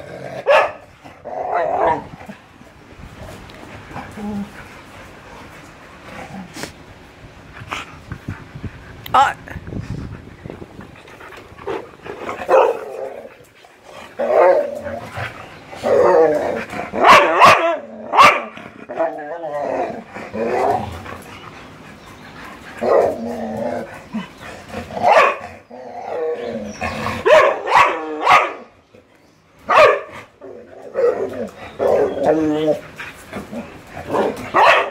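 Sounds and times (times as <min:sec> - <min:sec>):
dog barking and growling: 0:00.0 - 0:02.4, 0:11.6 - 0:13.4, 0:14.0 - 0:21.3, 0:22.8 - 0:28.7, 0:29.7 - 0:34.9.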